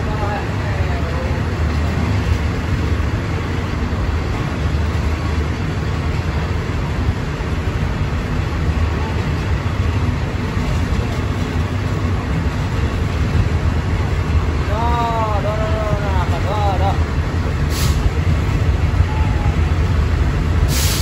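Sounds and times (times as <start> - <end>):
low rumble of moving train: 0.0 - 21.0.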